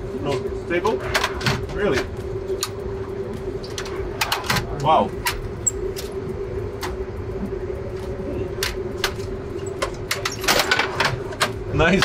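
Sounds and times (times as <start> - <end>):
low rumble: 0.0 - 11.7
steady machine hum: 0.0 - 12.0.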